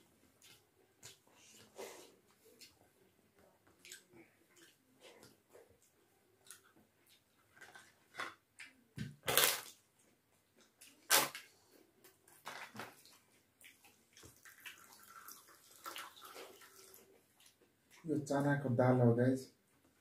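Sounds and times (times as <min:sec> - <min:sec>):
loud crisp crunches: 0:09.2 - 0:09.8, 0:11.0 - 0:11.5
liquid poured onto rice: 0:14.2 - 0:17.5.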